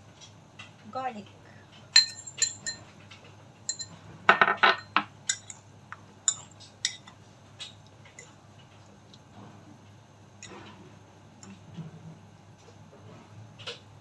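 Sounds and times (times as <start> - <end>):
fork clinking on ceramic bowl: 2.0 - 2.8, 3.7 - 4.0, 4.7 - 5.6, 6.2 - 7.2.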